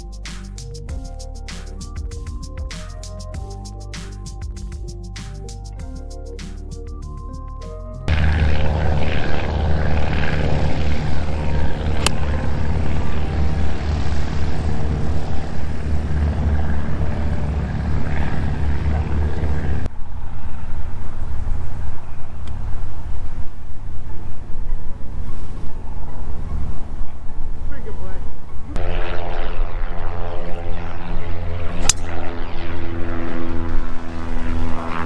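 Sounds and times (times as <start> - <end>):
golf club striking ball: 12.0 - 12.3, 31.8 - 32.2.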